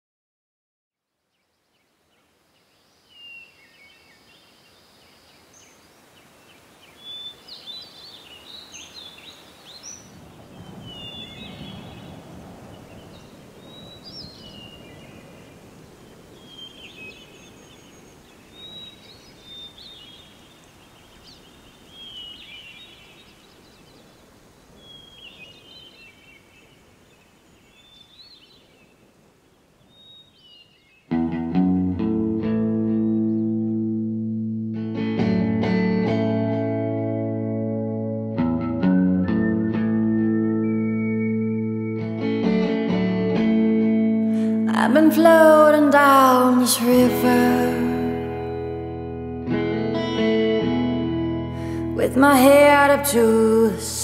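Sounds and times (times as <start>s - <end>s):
bird chirping: 1.3s - 31.2s, 32.9s - 34.0s, 39.2s - 42.3s.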